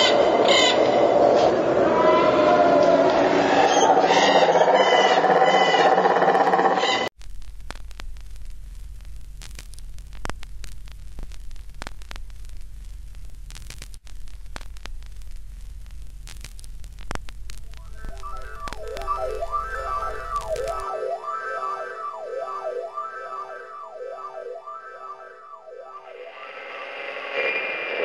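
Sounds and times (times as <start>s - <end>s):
crackles: 7.1s - 28.0s
static hiss: 7.2s - 28.0s
loud multi-tone pitched sound: 17.6s - 28.0s.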